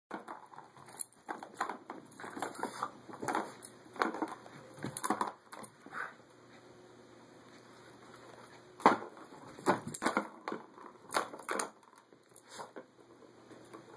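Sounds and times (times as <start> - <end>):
plastic toy clattering and knocking: 0.1 - 5.7, 8.8 - 12.0.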